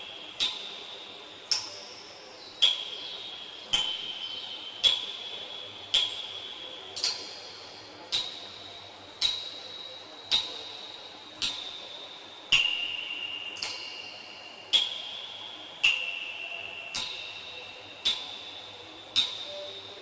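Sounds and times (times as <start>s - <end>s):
water drops plinking: 2.6s - 7.4s, 12.5s - 14.0s.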